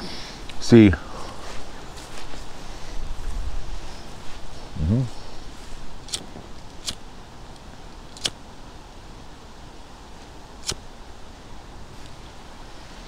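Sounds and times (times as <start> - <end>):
faint steady hiss: 0.0 - 13.0
sharp clicks: 6.1 - 8.4.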